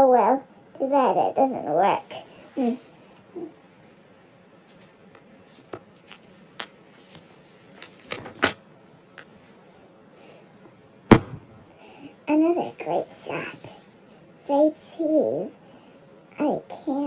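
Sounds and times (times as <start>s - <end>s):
book page rustling: 6.0s - 8.6s
sharp knock: 11.1s - 11.7s.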